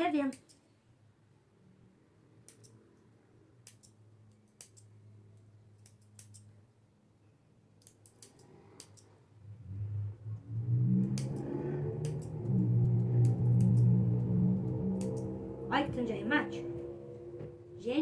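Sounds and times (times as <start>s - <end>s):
low steady hum: 9.4s - 18.0s.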